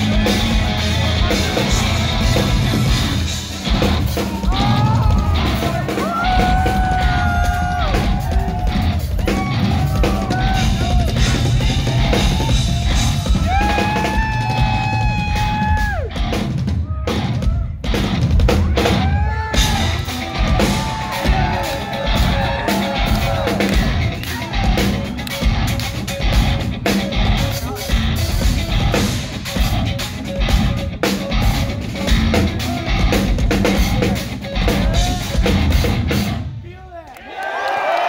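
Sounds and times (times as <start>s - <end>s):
drum kit playing: 0.0s - 36.6s
electric guitar lead notes bending: 21.6s - 36.4s.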